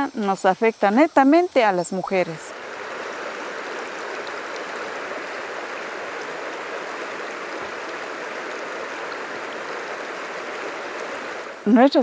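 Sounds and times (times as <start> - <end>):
river rushing over rocks: 2.4 - 11.6.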